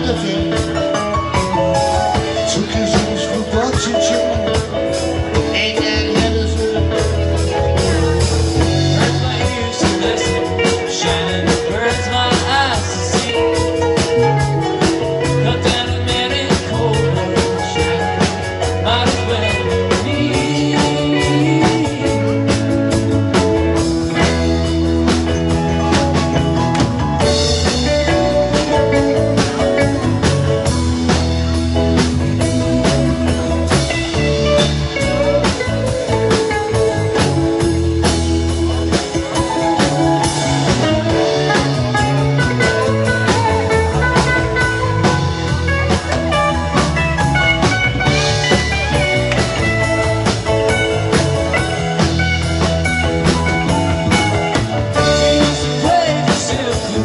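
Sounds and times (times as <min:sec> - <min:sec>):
live rock band playing: 0:00.0 - 0:57.0
steady drum beat: 0:00.0 - 0:57.0.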